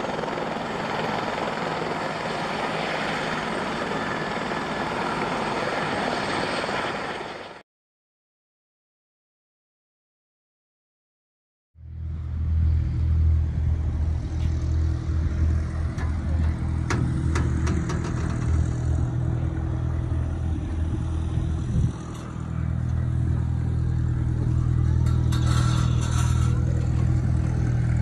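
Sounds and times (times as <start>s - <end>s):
engine running with deep hum: 11.8s - 28.0s.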